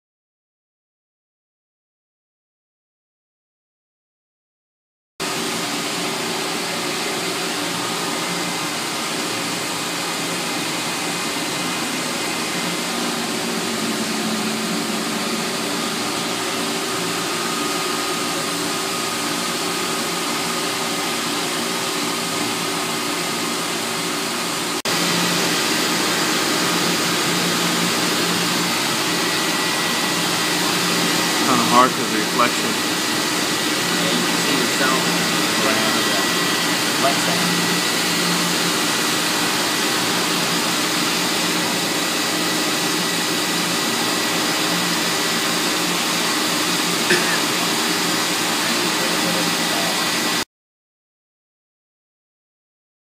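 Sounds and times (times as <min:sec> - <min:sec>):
grinding machine whirring: 0:05.2 - 0:50.4
coolant spray hissing: 0:24.9 - 0:50.2.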